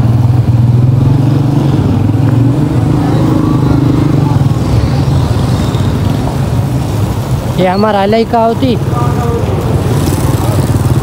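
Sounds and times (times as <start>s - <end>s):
motorcycle engine running: 8.6s - 11.0s.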